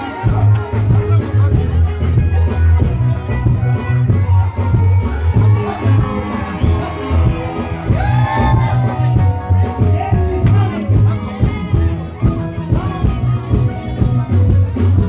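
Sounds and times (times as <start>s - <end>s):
deep bass: 0.0s - 15.0s
steady drum beat: 0.0s - 15.0s
man singing into a microphone: 5.5s - 14.0s.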